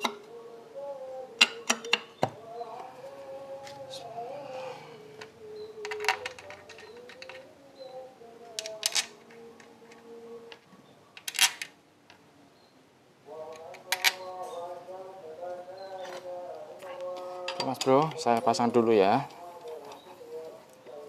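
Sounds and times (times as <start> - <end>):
tools clicking and knocking: 1.4 - 2.4, 5.8 - 7.4.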